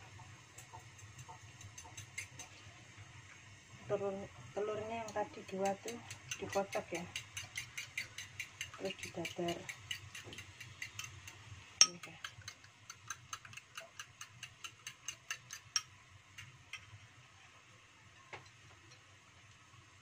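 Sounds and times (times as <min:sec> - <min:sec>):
spoon clinking against ceramic bowl: 0:11.8 - 0:12.6.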